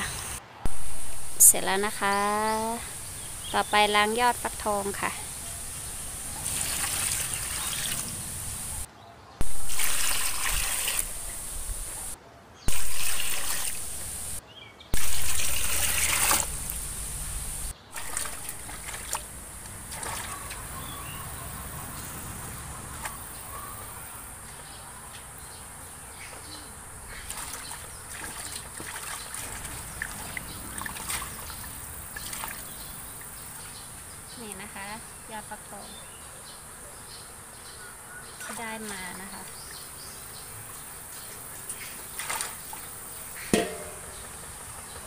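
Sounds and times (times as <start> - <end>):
tap water pouring into steel basin: 9.4 - 11.2, 12.7 - 14.2, 15.0 - 17.2, 18.0 - 19.3, 43.5 - 44.3.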